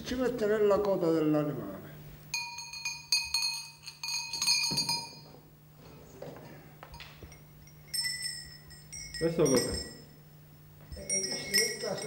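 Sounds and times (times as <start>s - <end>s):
harness bells jingling: 2.3s - 5.5s, 6.9s - 12.0s.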